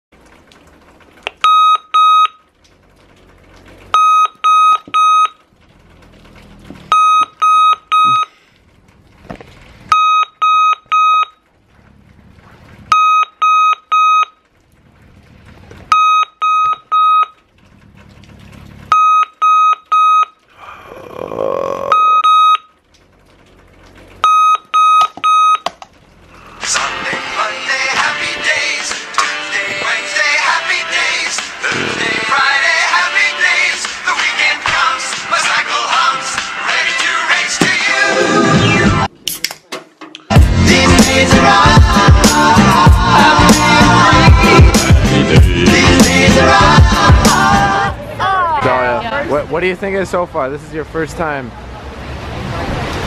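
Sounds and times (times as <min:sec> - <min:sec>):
alarm clock beeping: 0:04.0 - 0:05.4, 0:06.9 - 0:08.3, 0:24.2 - 0:25.6.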